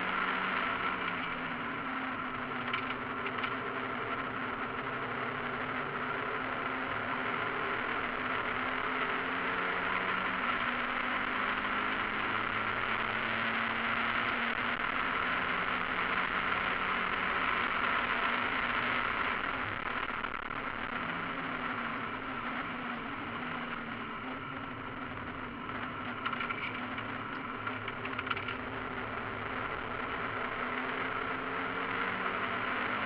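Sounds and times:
race car engine running: 0.0s - 33.0s.

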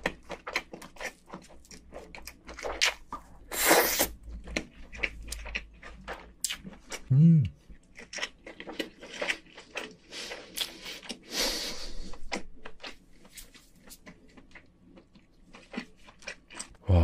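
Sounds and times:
chewing and wet mouth clicks: 0.0s - 3.3s, 3.9s - 7.1s, 7.7s - 11.3s, 12.1s - 16.8s.

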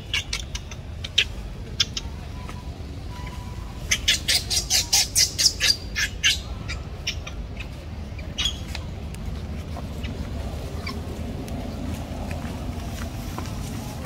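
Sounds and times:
baby monkey squealing: 0.0s - 8.8s, 10.8s - 11.0s.

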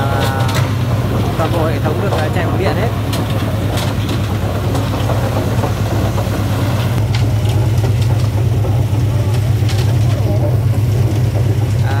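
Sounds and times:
tractor diesel engine chugging: 0.0s - 12.0s.

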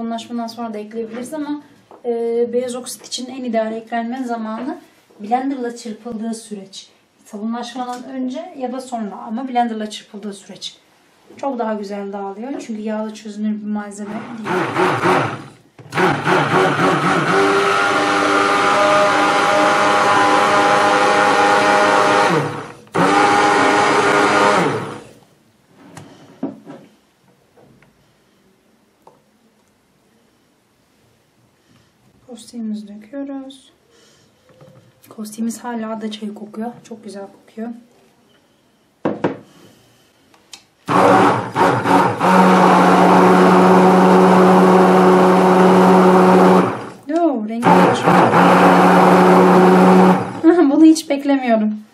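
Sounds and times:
immersion blender whirring: 14.0s - 25.2s, 40.9s - 47.0s, 47.6s - 50.5s.

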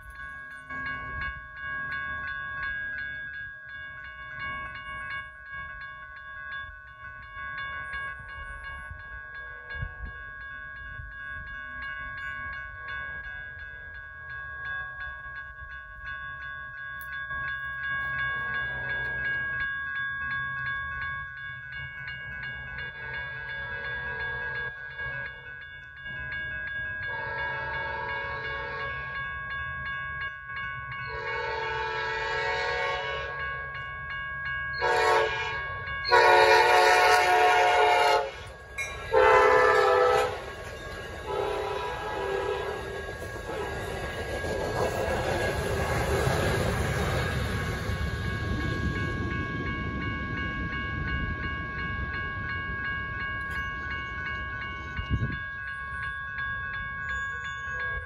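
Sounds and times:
railroad crossing bell ringing: 0.0s - 58.0s
train horn blasts: 27.1s - 29.0s, 31.1s - 33.4s, 34.8s - 38.5s, 39.1s - 40.6s, 41.3s - 42.8s
train wheels rumbling on rails: 34.8s - 58.0s.

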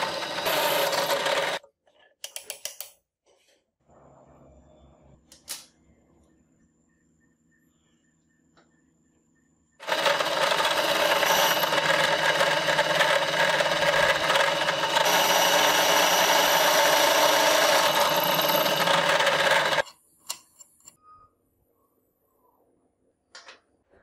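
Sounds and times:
drill press drilling steel: 0.0s - 1.6s, 9.8s - 19.8s.

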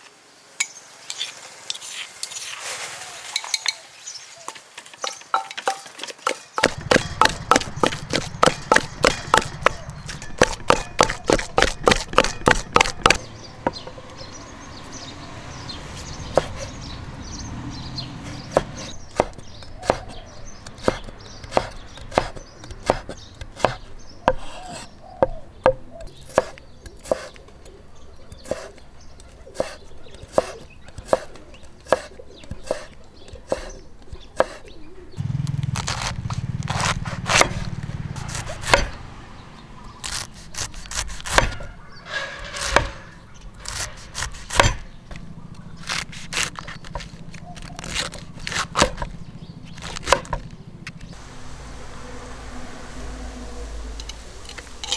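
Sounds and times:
wooden chopping strikes: 4.5s - 14.0s, 18.3s - 27.7s, 35.4s - 39.0s, 40.0s - 41.7s, 42.5s - 50.5s.

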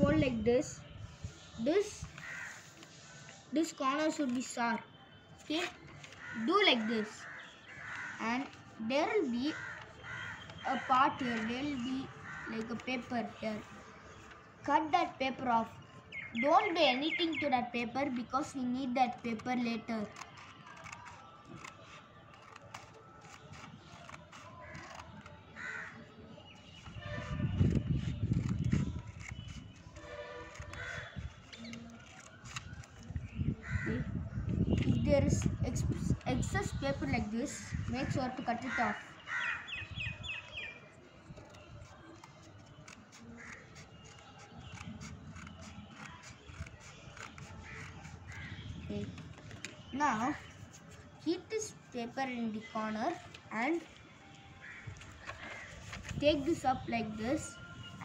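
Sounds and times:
scissors snipping paper: 1.8s - 4.8s, 5.4s - 14.4s, 17.4s - 25.9s, 26.5s - 33.4s, 41.2s - 54.0s, 54.6s - 58.0s.

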